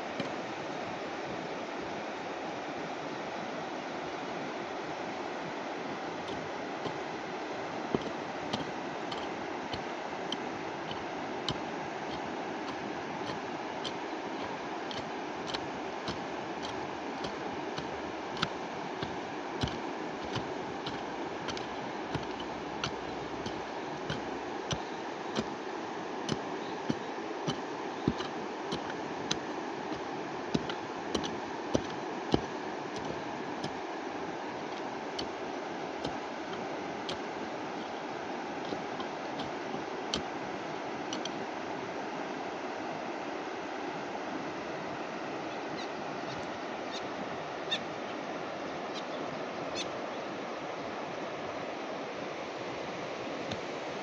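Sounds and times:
river rushing: 0.0 - 54.0
sharp light ticks: 7.9 - 25.6, 26.2 - 33.8, 34.7 - 38.0, 38.6 - 40.3, 41.1 - 41.4.

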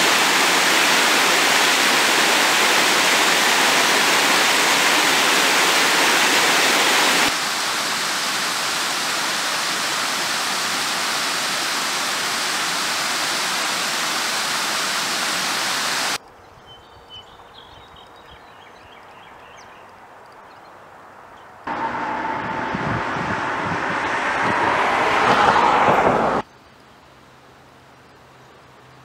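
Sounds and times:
waterfall rushing over rocks: 0.0 - 16.2, 21.7 - 26.4.

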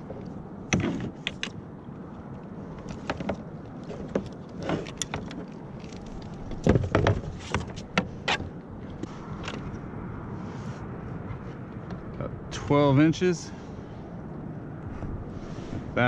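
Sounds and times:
fishing gear clicking and rattling: 0.0 - 9.8
steady low rumble: 5.4 - 16.0.

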